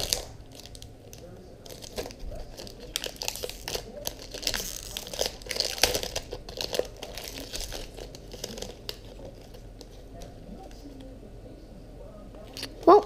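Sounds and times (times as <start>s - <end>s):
foil wrapper crinkling and tearing: 0.0s - 9.9s.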